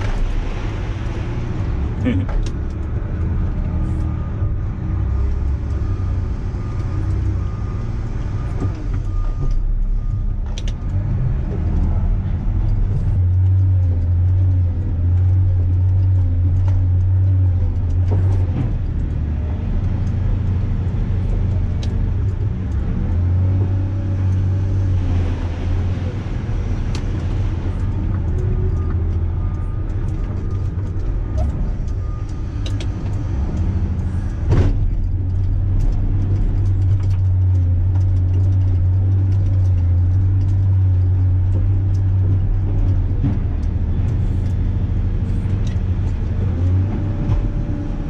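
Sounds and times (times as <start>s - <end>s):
diesel engine droning: 0.0s - 48.0s.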